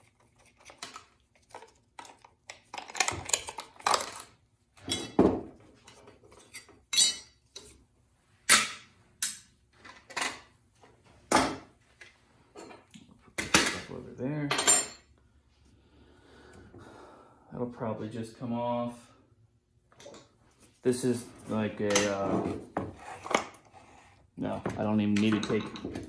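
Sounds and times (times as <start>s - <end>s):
metal parts clinking on workbench: 0.8s - 5.2s, 14.5s - 15.1s, 25.1s - 26.0s.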